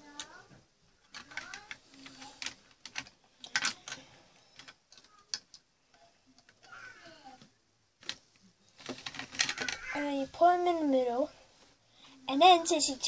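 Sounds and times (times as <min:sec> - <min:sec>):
plastic bricks clicking and rattling: 0:01.0 - 0:05.6, 0:08.0 - 0:09.9.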